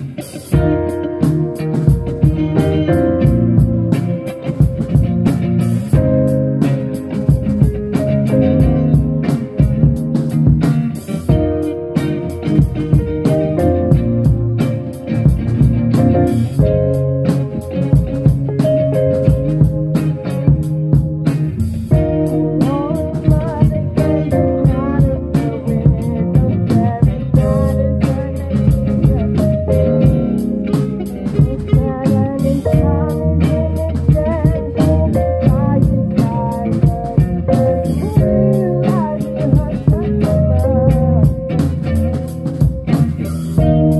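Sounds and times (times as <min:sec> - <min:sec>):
drum kit: 0:00.0 - 0:43.9
electric guitar: 0:00.0 - 0:43.9.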